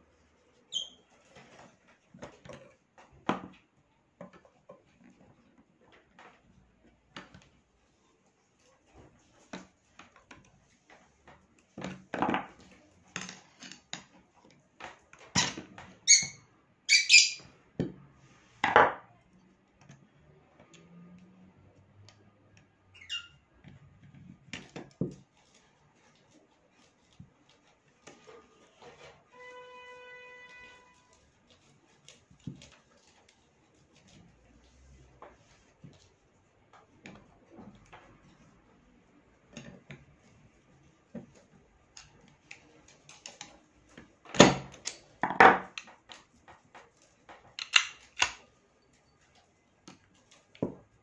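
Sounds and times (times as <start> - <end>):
short high squeaks: 0.7 - 1.1, 16.1 - 17.5.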